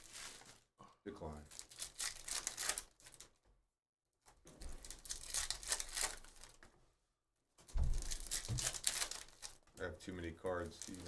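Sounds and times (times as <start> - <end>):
foil wrappers crinkling: 0.0 - 0.7, 1.5 - 3.3, 4.6 - 6.7, 7.9 - 9.8, 10.5 - 11.0
cards being shuffled: 4.7 - 6.7, 7.9 - 9.6.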